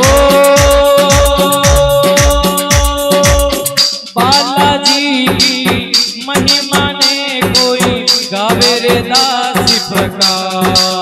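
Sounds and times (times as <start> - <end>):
bending melody line: 0.0 - 5.8
driving percussion beat: 0.0 - 11.0.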